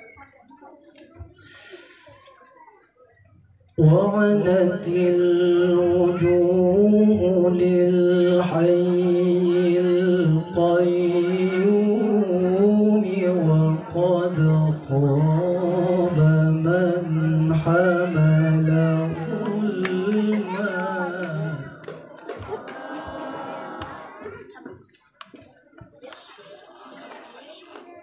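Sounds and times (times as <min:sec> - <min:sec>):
man chanting a recitation: 0:03.8 - 0:21.9.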